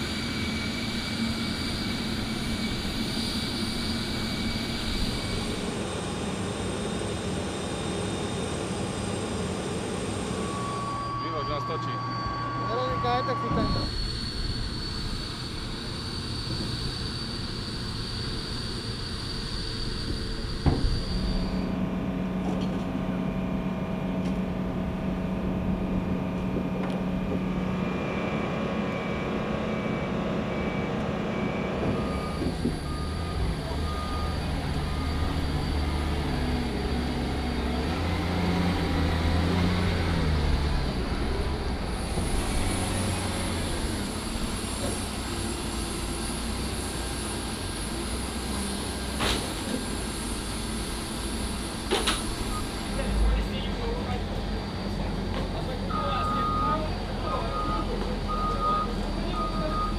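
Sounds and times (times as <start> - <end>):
forklift diesel engine: 0.0 - 59.9
high machinery whine: 0.0 - 59.9
low machinery hum: 0.0 - 59.9
short beeps: 10.2 - 17.4, 28.9 - 35.8, 55.9 - 59.9.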